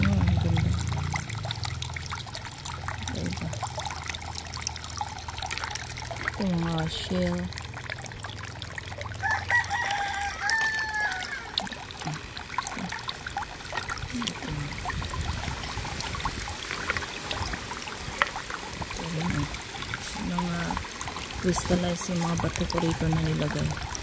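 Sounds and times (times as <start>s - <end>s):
fountain water trickling: 0.0s - 24.0s
rooster crowing: 9.2s - 11.6s.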